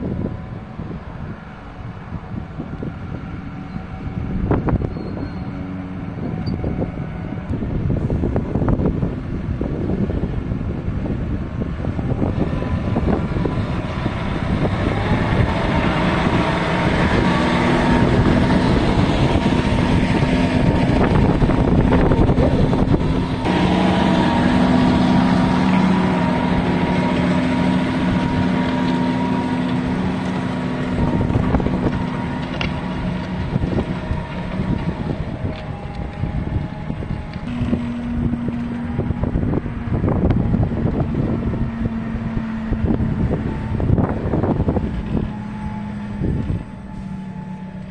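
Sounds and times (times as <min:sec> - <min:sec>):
tractor diesel engine running: 0:00.0 - 0:47.9
wind buffeting microphone: 0:00.0 - 0:47.9.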